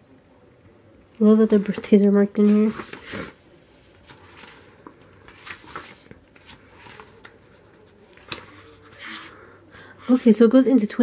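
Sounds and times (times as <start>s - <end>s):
paper pages rustling: 1.3s - 9.4s.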